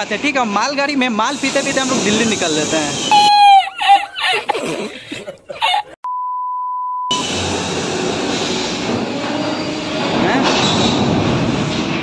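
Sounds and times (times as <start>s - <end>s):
freight train rolling: 0.0s - 3.6s, 7.1s - 12.0s
steady censor beep: 6.0s - 7.2s.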